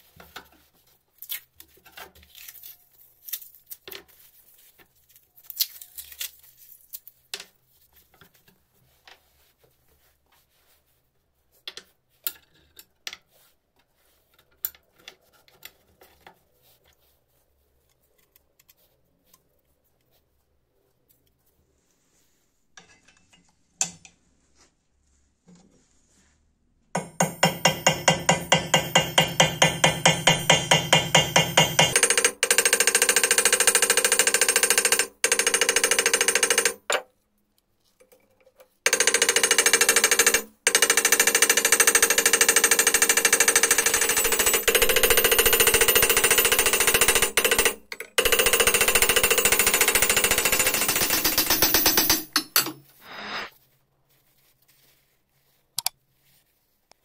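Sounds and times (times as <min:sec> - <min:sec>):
small hammer striking metal: 0:27.0 - 0:37.0, 0:38.9 - 0:53.5.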